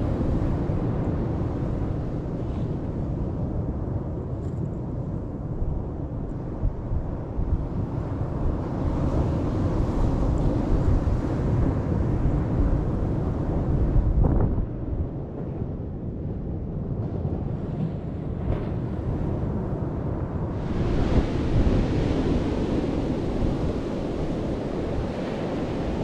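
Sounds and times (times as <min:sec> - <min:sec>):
wind buffeting microphone: 0:00.0 - 0:26.0
surf breaking on sand beach: 0:20.5 - 0:26.0.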